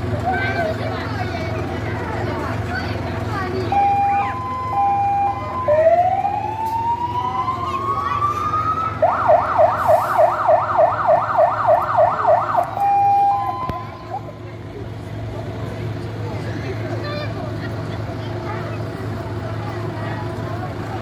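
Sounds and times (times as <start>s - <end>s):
fire engine siren: 3.5s - 14.4s.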